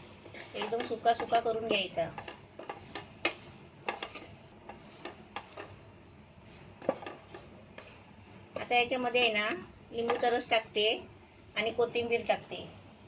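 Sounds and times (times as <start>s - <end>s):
spatula tapping a pan: 0.6s - 5.8s, 6.8s - 7.9s, 9.4s - 10.4s.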